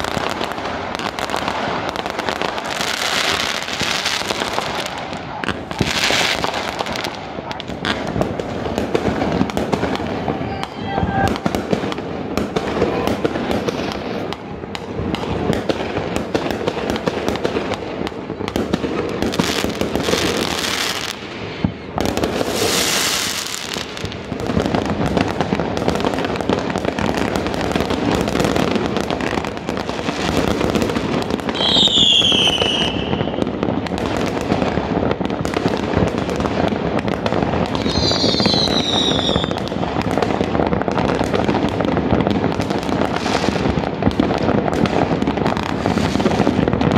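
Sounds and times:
fireworks bangs and pops: 0.0s - 46.9s
hissing firework bursts: 0.0s - 46.9s
falling firework whistles: 31.5s - 33.5s, 37.7s - 39.6s.

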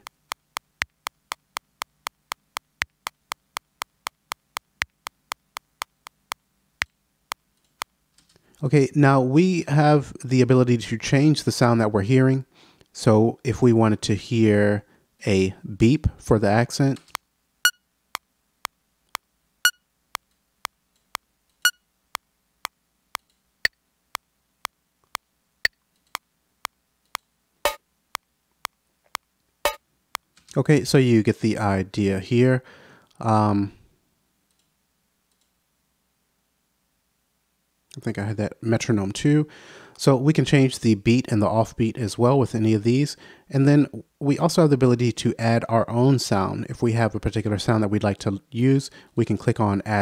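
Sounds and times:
metronome clicking: 0.0s - 7.9s
software metronome clicking: 0.0s - 8.0s, 18.6s - 30.3s.

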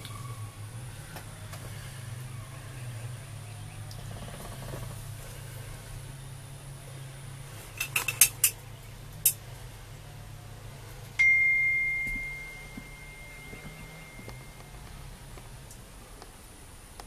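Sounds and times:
low steady hum: 0.0s - 17.0s
bright ringing ping: 11.2s - 14.8s.

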